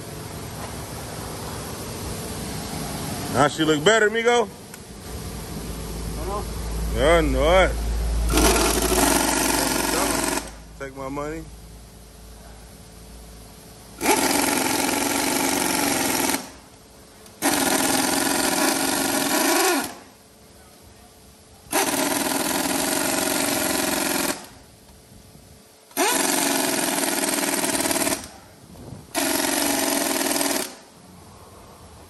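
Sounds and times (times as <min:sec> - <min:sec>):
impact wrench hammering: 0:08.3 - 0:10.6, 0:14.0 - 0:16.7, 0:17.4 - 0:20.1, 0:21.7 - 0:24.6, 0:25.9 - 0:28.4, 0:29.2 - 0:30.8.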